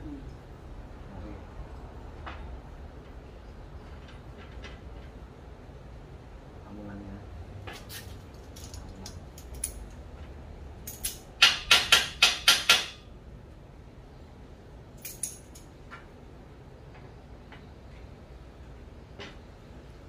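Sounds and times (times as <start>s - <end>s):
metal tool clicking on metal frame: 8.5s - 10.0s, 10.8s - 13.0s, 15.0s - 15.7s.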